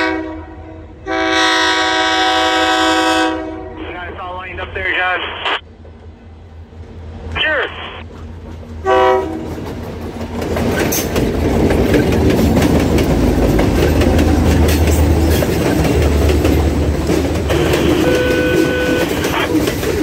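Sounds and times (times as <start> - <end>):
diesel locomotive engines droning: 0.0 - 20.0
freight cars rolling: 8.1 - 20.0
wheels clicking over rail joints: 9.4 - 20.0.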